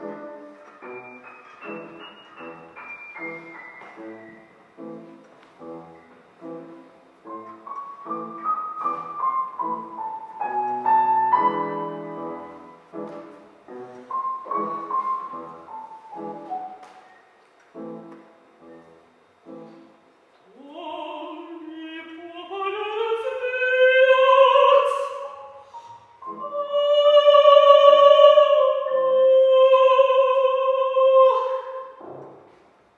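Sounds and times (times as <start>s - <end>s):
piano chords: 0.0s - 20.3s.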